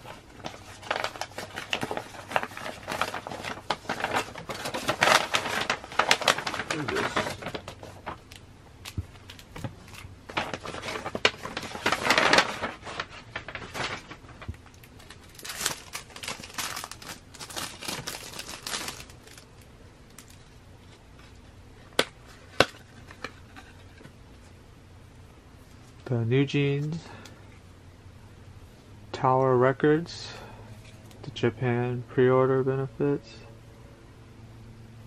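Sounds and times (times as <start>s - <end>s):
paper packaging crinkling: 0.0s - 24.1s.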